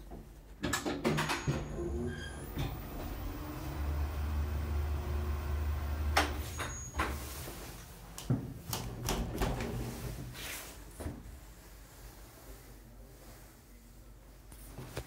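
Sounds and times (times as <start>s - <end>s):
platform lift drive humming: 1.5s - 6.4s.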